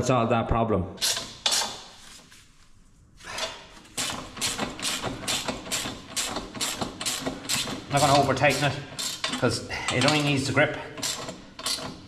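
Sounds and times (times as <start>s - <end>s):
ratchet wrench clicking: 4.0s - 12.0s.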